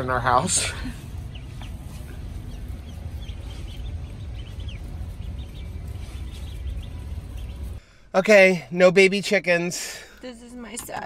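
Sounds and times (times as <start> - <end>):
chicks peeping: 0.0 - 7.8
low steady rumble: 0.0 - 9.2.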